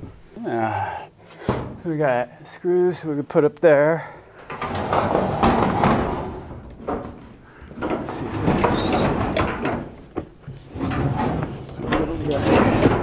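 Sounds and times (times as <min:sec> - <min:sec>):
sliding door rolling on rail: 0:04.5 - 0:13.0.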